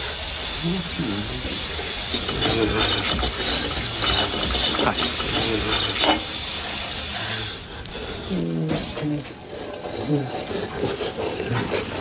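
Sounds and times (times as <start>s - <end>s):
water running from sink tap: 0.0s - 8.2s.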